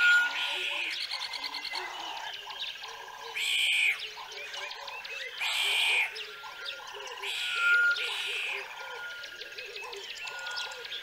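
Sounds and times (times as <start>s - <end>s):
animal chirps and calls: 0.0s - 11.0s
loud harsh animal calls: 3.3s - 4.0s, 7.2s - 9.1s.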